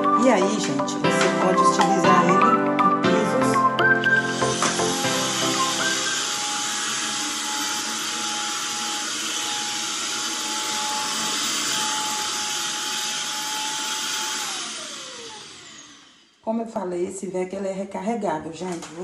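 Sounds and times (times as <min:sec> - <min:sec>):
stick vacuum cleaner running: 0:00.0 - 0:16.4.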